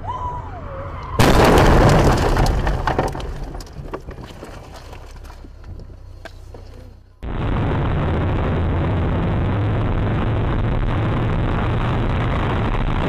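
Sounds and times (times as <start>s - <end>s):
car crash impact: 1.2s - 5.3s.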